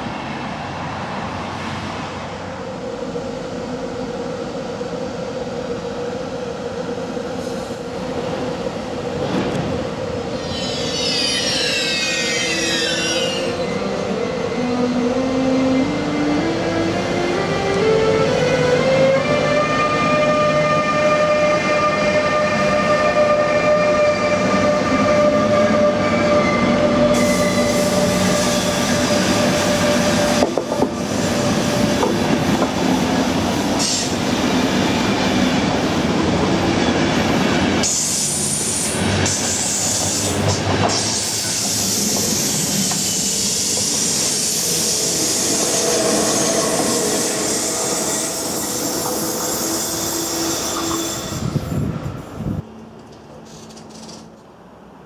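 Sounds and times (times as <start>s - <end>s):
electric locomotive whine: 0.0s - 55.0s
train wheels and rail clatter: 7.1s - 13.7s, 25.5s - 54.7s
high wheel squeal: 10.3s - 13.9s, 24.4s - 30.4s, 37.9s - 51.8s.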